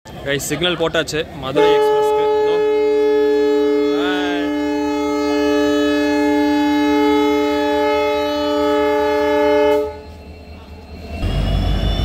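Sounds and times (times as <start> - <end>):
train air horn blast: 1.5 - 10.1.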